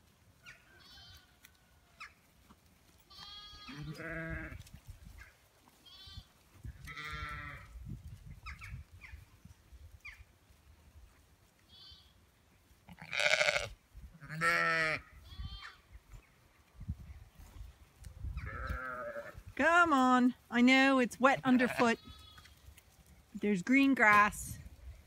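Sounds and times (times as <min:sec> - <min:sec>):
sheep and lambs bleating: 0:00.5 - 0:01.5, 0:03.0 - 0:04.7, 0:05.7 - 0:07.8, 0:11.7 - 0:12.2, 0:12.8 - 0:15.9, 0:18.4 - 0:19.4, 0:21.4 - 0:22.6.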